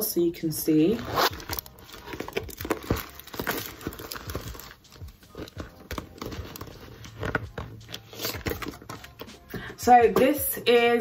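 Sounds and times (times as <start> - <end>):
canvas pouch rustling: 0.8 - 9.5
plastic bag crinkling: 0.9 - 9.2.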